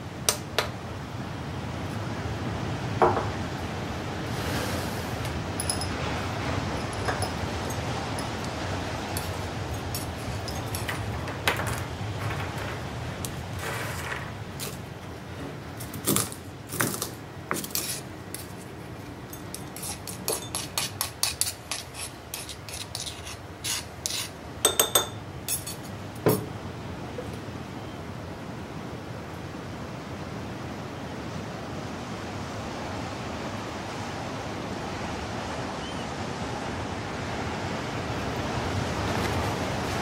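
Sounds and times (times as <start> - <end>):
glassy clinks: 5.6 - 6.0, 6.7 - 8.5, 9.2 - 11.2, 19.3 - 20.7, 24.6 - 26.5
metal spatula scraping mortar: 17.5 - 18.1, 19.5 - 24.4.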